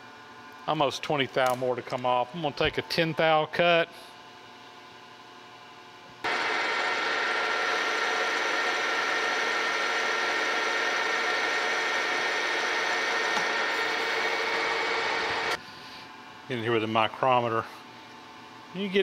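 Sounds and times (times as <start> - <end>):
metal lathe running: 6.3 - 15.6.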